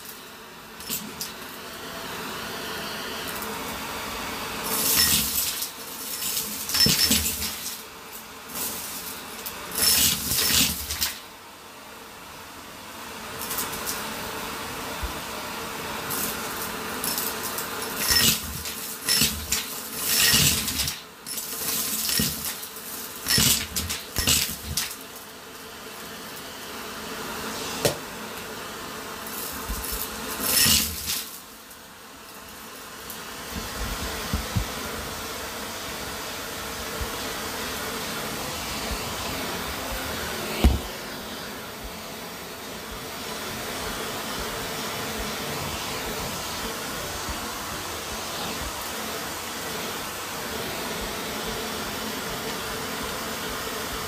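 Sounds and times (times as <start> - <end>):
debris clattering up vacuum hose: 0.0 - 1.6, 3.1 - 11.3, 16.0 - 26.5, 29.2 - 34.7
vacuum cleaner motor humming: 0.0 - 54.0.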